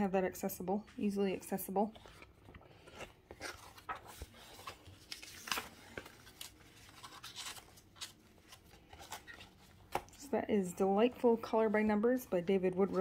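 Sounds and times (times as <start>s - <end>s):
paper pages rustling: 1.8s - 10.2s.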